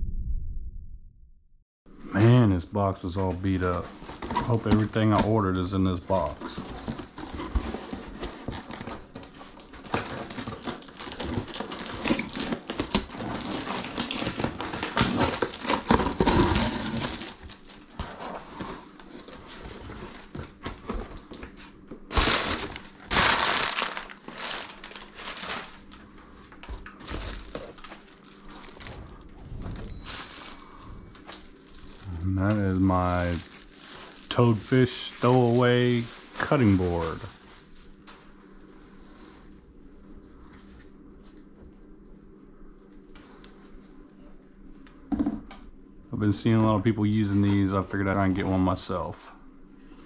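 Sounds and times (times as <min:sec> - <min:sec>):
packing paper rustling: 0:03.2 - 0:39.5
plastic-wrapped item handled: 0:03.3 - 0:38.4.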